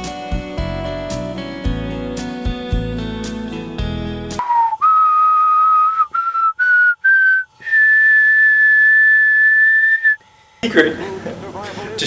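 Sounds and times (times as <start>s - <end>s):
person whistling: 4.4s - 10.2s.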